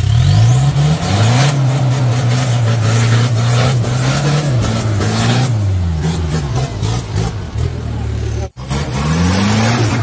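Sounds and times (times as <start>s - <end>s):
truck engine at high revs: 0.0s - 10.0s.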